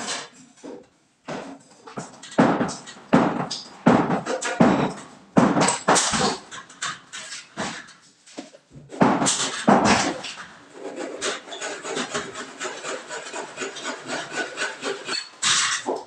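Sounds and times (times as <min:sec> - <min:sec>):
knocks on metal: 0:02.0 - 0:06.6, 0:09.0 - 0:10.2
metal scraping strokes: 0:09.3 - 0:16.0.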